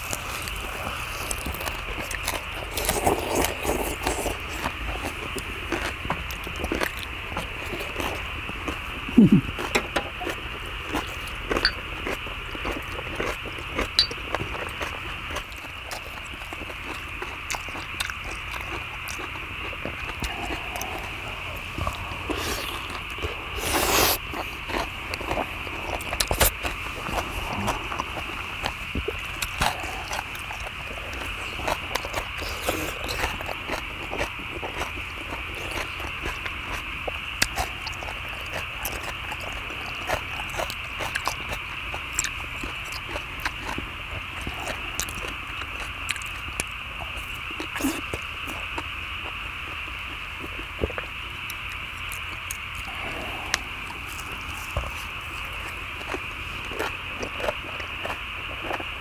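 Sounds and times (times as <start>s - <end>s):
people chewing: 0.0s - 59.0s
steady high hiss: 13.8s - 42.9s, 43.9s - 59.0s.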